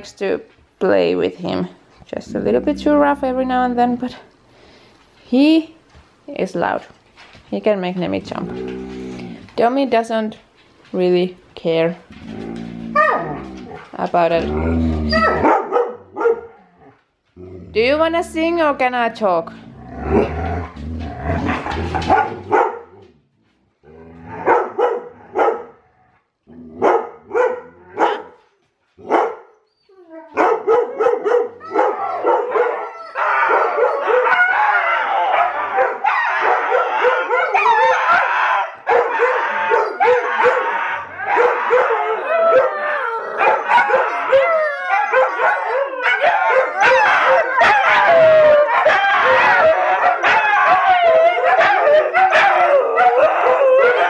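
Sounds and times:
dogs howling: 2.2s - 4.1s, 12.2s - 16.9s, 29.9s - 54.0s
dog woo-barks: 12.9s - 13.8s, 15.0s - 16.6s, 21.4s - 22.9s, 24.3s - 25.7s, 26.8s - 28.4s, 30.2s - 54.0s.

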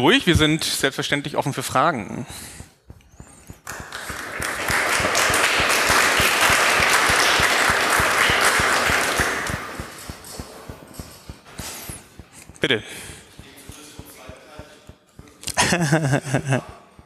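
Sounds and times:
audience applauding: 3.6s - 10.6s.

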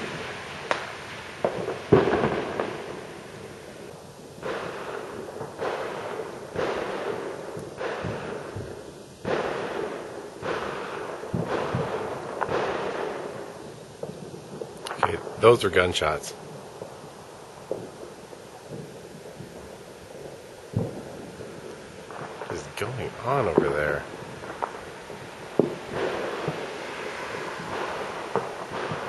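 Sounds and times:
distant gunshots echoing: 0.0s - 3.5s, 4.4s - 15.5s, 20.7s - 29.0s.

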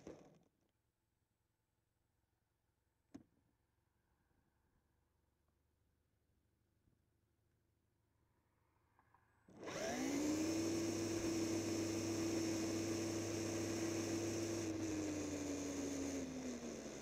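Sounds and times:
electric motor and gears whining: 9.6s - 17.0s.

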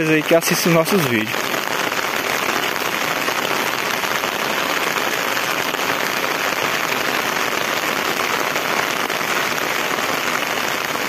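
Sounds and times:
steady rain hiss: 0.0s - 11.0s.

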